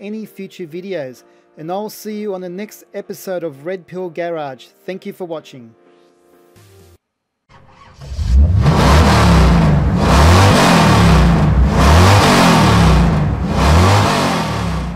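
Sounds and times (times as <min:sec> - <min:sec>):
car engine revving: 0:07.6 - 0:14.9.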